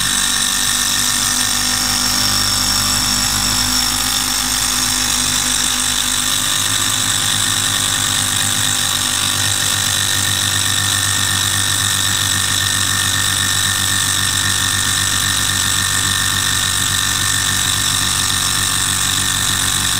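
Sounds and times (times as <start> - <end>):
model engine whirring: 0.0 - 19.9.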